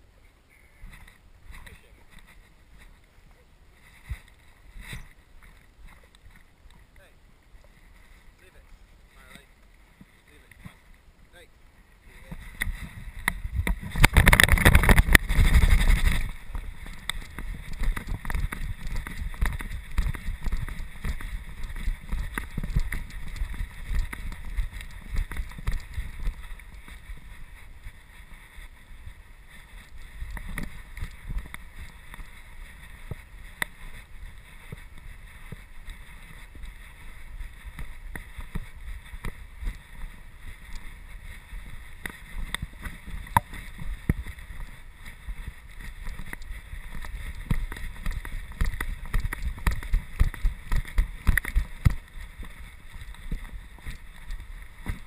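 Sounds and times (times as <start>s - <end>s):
camera handling rumble: 12.4s - 27.0s.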